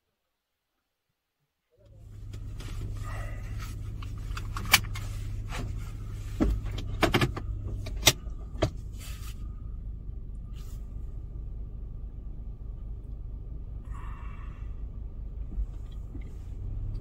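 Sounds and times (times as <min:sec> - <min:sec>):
vehicle engine idling: 0:01.8 - 0:17.0
car doors shutting: 0:02.2 - 0:09.0.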